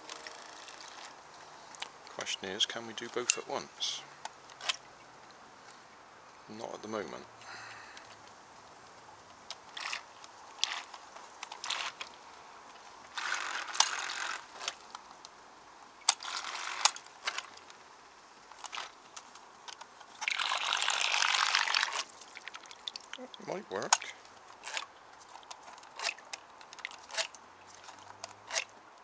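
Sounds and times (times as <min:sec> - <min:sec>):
propeller churning water: 0:20.1 - 0:23.7.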